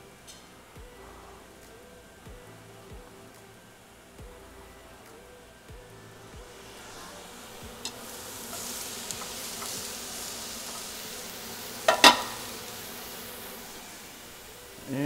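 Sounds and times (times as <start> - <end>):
mushrooms sizzling in a frying pan: 6.6 - 15.0
glass pan lid clanking: 11.9 - 12.4.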